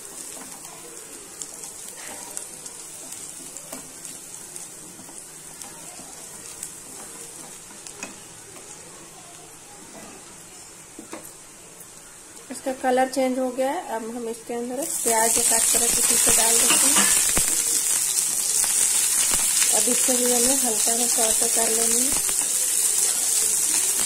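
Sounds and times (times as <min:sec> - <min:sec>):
garlic sizzling in oil: 0:00.0 - 0:24.0.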